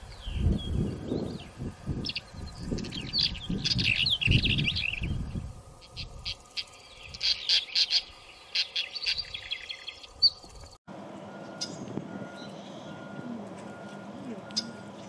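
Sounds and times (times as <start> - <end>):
small songbirds chirping: 0.0 - 10.8, 14.5 - 14.8.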